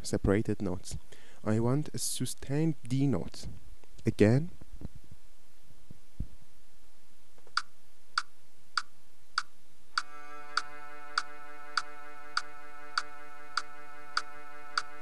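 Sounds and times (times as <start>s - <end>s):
sustained cello note: 10.0s - 15.0s.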